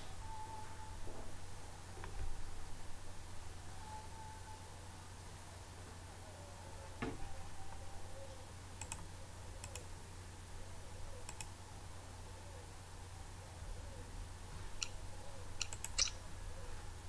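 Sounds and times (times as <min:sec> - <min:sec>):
faint low hum: 0:00.0 - 0:17.0
computer mouse clicks: 0:08.8 - 0:09.8, 0:11.2 - 0:11.5, 0:15.6 - 0:16.1.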